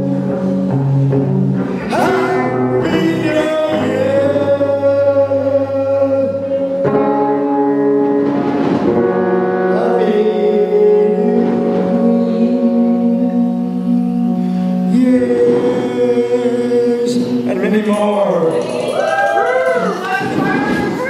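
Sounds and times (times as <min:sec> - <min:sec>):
electric guitar: 0:00.0 - 0:21.0
live band playing slow song: 0:00.0 - 0:21.0
man singing into microphone: 0:01.8 - 0:08.0, 0:09.4 - 0:18.7.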